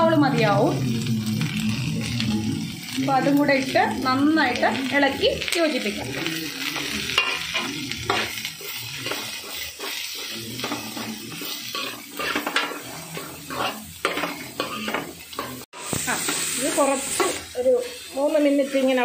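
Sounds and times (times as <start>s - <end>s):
light frying sizzle: 0.0s - 19.0s
metal spoon scraping metal pot: 7.1s - 15.6s.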